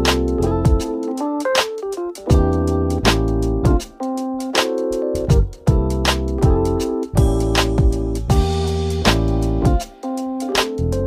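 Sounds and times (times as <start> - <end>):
instrumental notes: 0.0 - 11.0
regular drum beat: 0.0 - 11.0.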